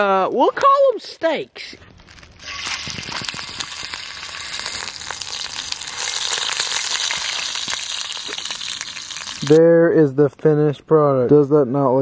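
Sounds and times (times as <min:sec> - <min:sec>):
meat frying in hot oil: 0:02.4 - 0:09.6.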